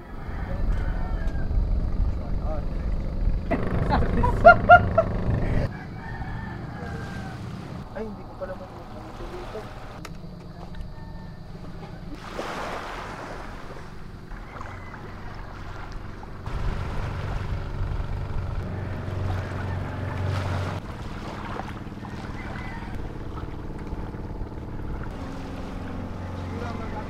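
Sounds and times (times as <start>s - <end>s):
boat engine running: 0.0s - 27.0s
wind on microphone: 0.1s - 6.4s
water lapping: 1.0s - 10.8s, 11.4s - 27.0s.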